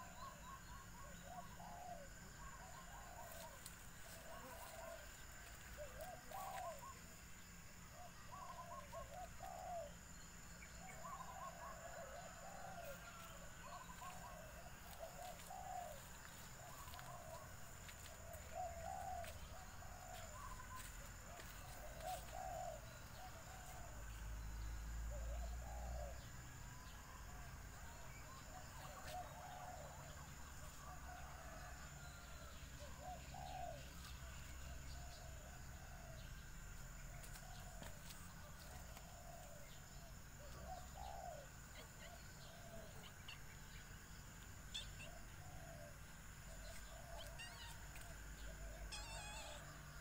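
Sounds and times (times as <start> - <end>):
faint bird calls: 0.0 - 27.1, 37.1 - 50.0.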